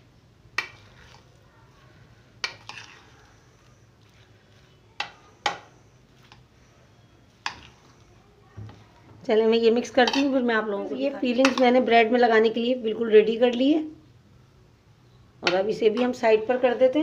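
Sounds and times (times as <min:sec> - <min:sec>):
stirring mashed potato: 0:00.5 - 0:09.0, 0:09.8 - 0:10.7, 0:11.3 - 0:11.9.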